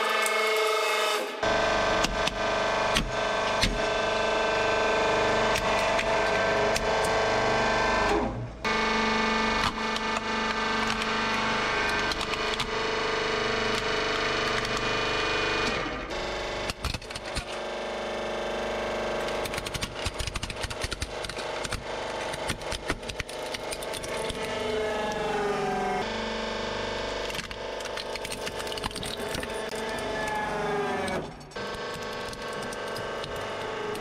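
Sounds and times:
hydraulic press motor hum: 1.3 - 34.0
plastic toy cracking and snapping: 16.7 - 17.6, 19.4 - 24.5, 27.3 - 29.8.

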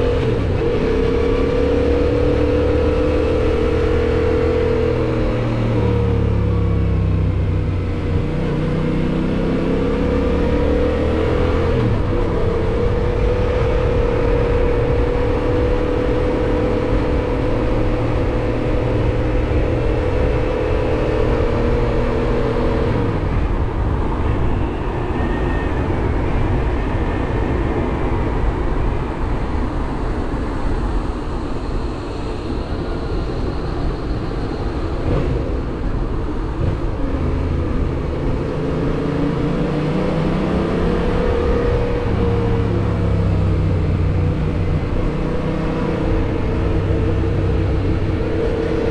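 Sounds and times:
wind noise: 0.0 - 48.9
motorcycle engine cruising: 36.6 - 48.9.

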